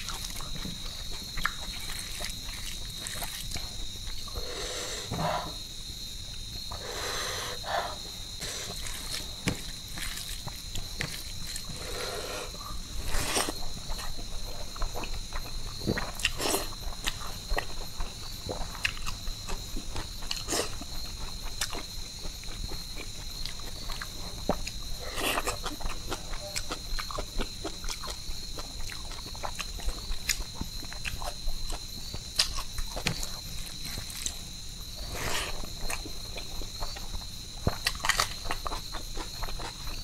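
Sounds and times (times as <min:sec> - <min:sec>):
chewing and lip-smacking: 0:00.0 - 0:04.4, 0:12.7 - 0:40.0.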